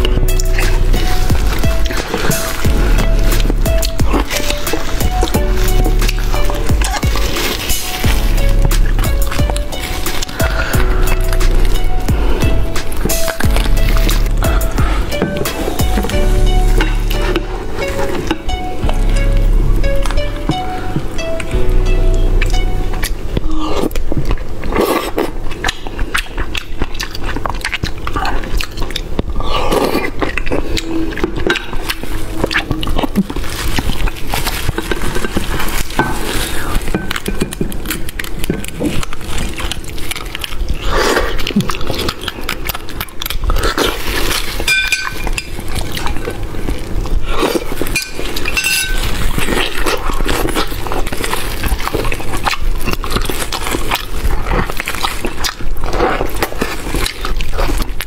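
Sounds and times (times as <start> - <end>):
wet chewing and slurping: 0.0 - 58.0
metal spoon scraping bone and bowl: 44.3 - 45.7, 47.9 - 50.6.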